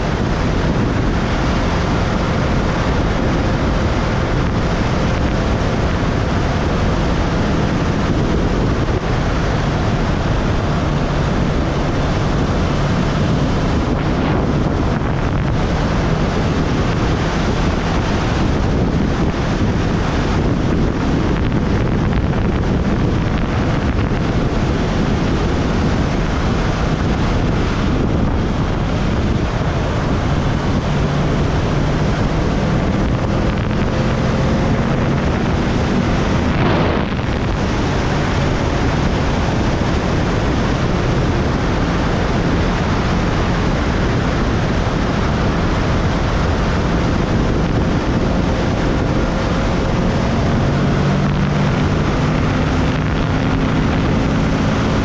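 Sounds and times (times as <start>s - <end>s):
motorcycle engine: 0.0s - 55.0s
wind rushing over microphone: 0.0s - 55.0s.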